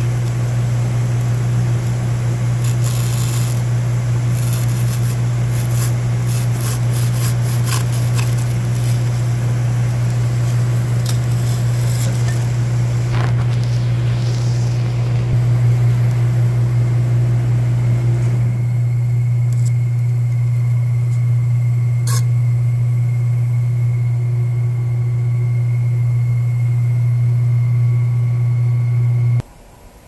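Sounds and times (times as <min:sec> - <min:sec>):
lathe humming: 0:00.0 - 0:29.4.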